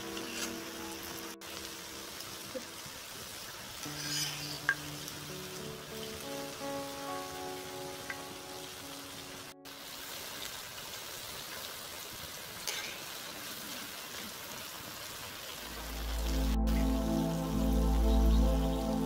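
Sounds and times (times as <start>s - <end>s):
frying in hot oil sizzling: 0.0s - 19.0s
background music: 3.8s - 9.7s, 15.7s - 19.0s.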